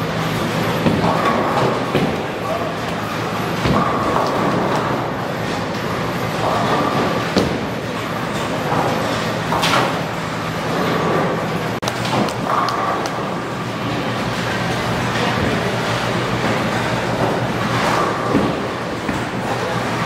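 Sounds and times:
bowling balls rolling: 0:00.0 - 0:20.0
balls striking pins: 0:00.8 - 0:05.0, 0:10.7 - 0:13.6.

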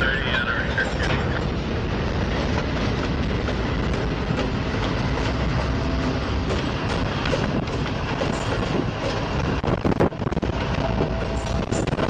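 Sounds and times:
diesel locomotive engines: 0:00.0 - 0:12.0
wheels clicking over rail joints: 0:02.4 - 0:12.0.

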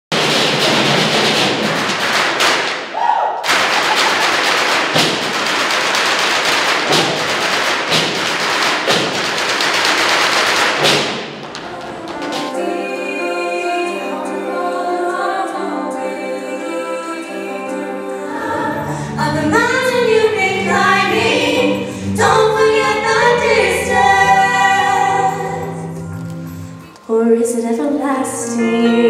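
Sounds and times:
drumming on metal bins and drums: 0:00.1 - 0:02.9, 0:03.5 - 0:12.8.

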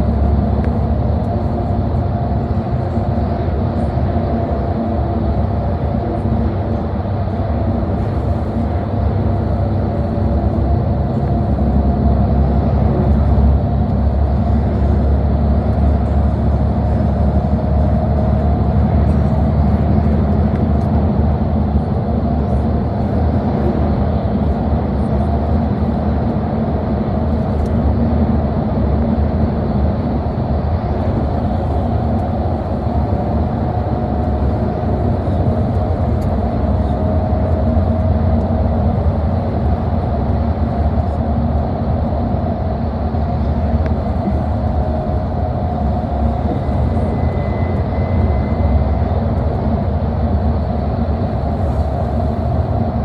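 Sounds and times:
bus engine and road rumble: 0:00.0 - 0:53.0
faint whining tones: 0:43.4 - 0:49.6.

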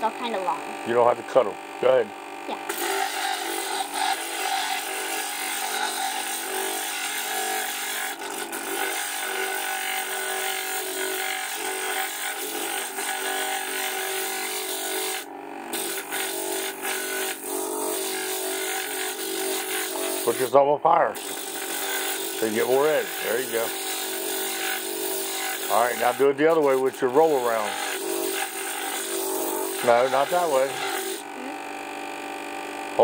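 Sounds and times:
grinder motor hum: 0:00.0 - 0:33.0
stone grinding hiss: 0:21.2 - 0:31.3.

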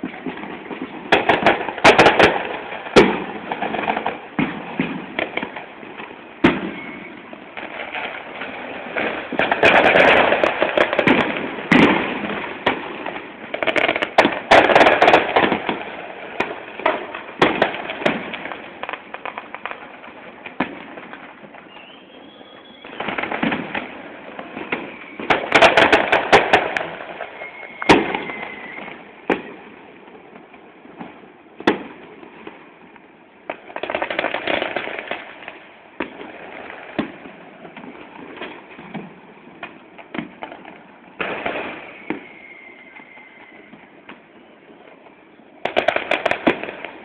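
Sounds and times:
fireworks bangs and crackling: 0:00.0 - 0:47.0
firework falling whistle: 0:06.4 - 0:08.2, 0:21.4 - 0:29.7, 0:41.2 - 0:47.0.

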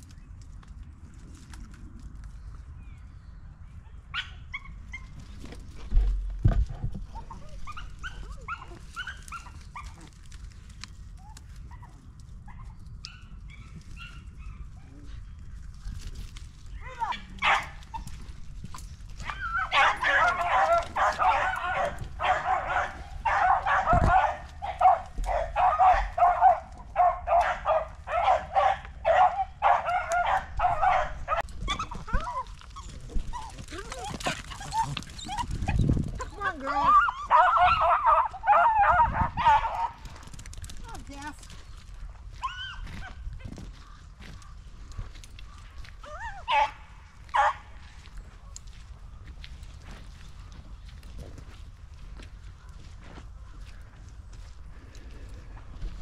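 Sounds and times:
dogs baying and yelping: 0:07.0 - 0:10.2, 0:16.8 - 0:40.7, 0:42.2 - 0:48.1.

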